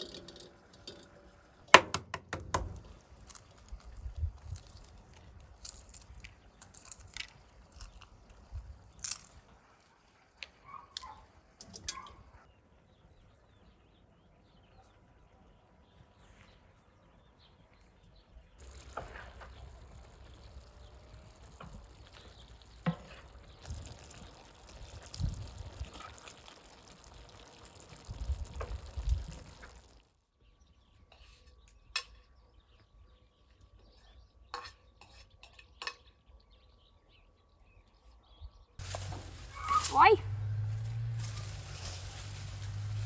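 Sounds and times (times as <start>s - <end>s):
food sizzling in a pan: 18.6s - 30.1s.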